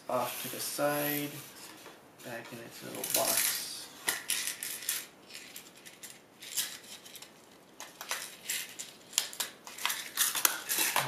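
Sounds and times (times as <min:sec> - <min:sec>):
small screws clicking and rattling: 0:04.2 - 0:07.3.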